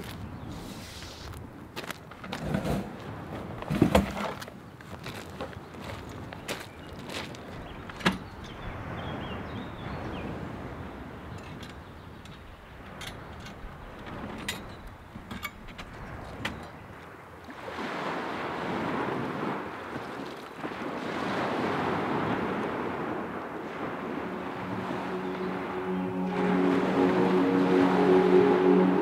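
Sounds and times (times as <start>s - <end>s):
waves washing on pebble beach: 17.0s - 25.3s.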